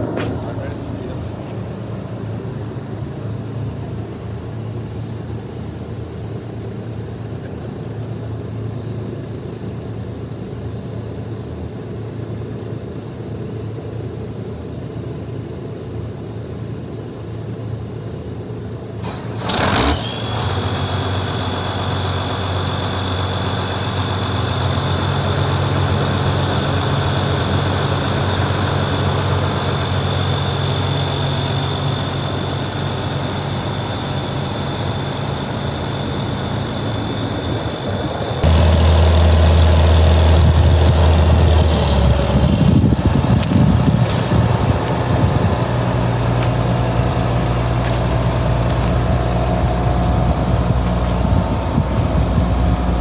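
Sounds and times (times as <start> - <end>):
steady high whine: 0.0 - 19.0, 19.9 - 53.0
diesel engine running: 0.0 - 53.0.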